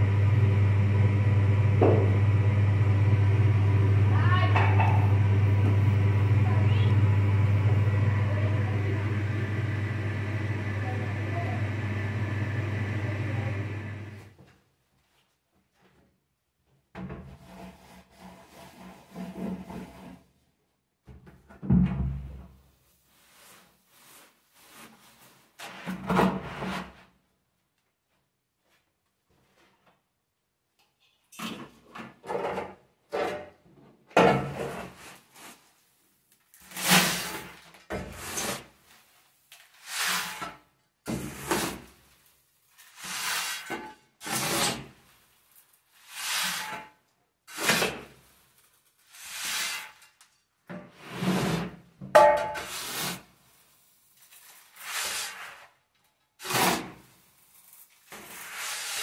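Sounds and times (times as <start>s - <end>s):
shovel scooping grain: 39.8s - 40.4s, 42.8s - 44.6s, 56.4s - 59.0s.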